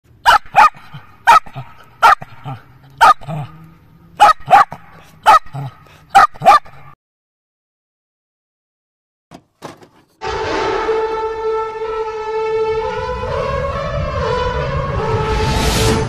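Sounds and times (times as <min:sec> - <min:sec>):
dog barking: 0:00.2 - 0:03.6, 0:04.2 - 0:07.0.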